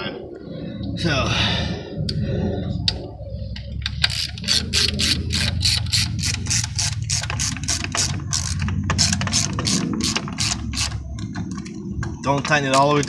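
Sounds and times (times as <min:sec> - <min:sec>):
hand ratchet clicking: 0:03.9 - 0:11.0.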